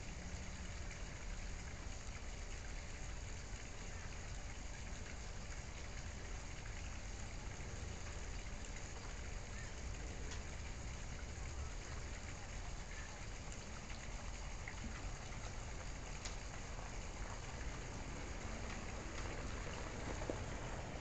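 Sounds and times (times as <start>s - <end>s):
faint ticks: 9.8s - 10.8s, 14.7s - 17.6s.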